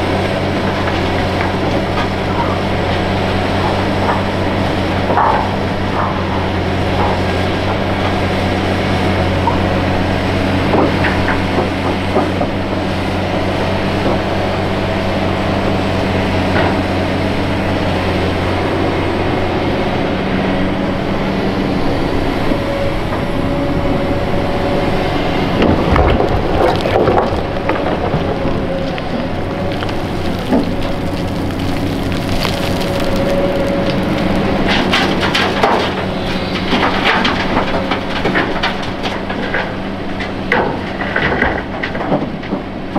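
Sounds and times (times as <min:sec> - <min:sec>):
machine and bucket clanking: 0:00.0 - 0:15.1, 0:24.7 - 0:42.9
excavator diesel engine running: 0:00.0 - 0:42.9.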